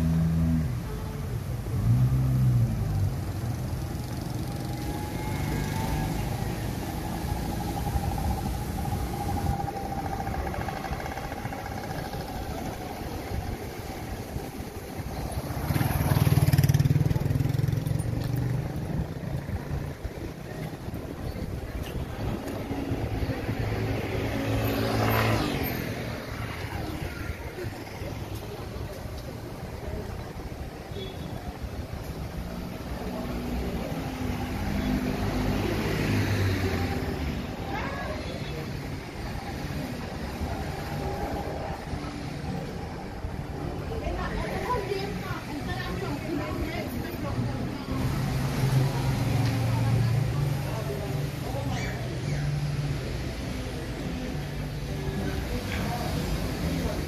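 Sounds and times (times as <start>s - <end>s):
vehicle engine humming: 0.0s - 51.7s
city street traffic: 0.0s - 57.0s.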